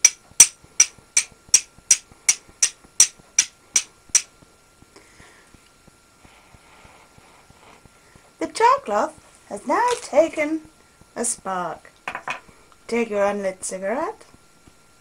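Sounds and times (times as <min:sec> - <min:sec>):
steel striking flint: 0:00.0 - 0:04.3.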